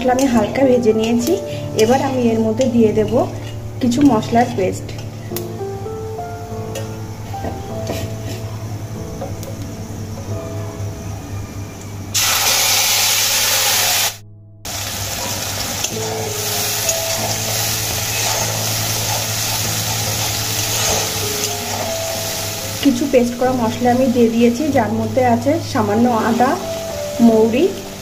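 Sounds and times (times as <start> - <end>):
spice paste sizzling in oil: 12.2 - 28.0.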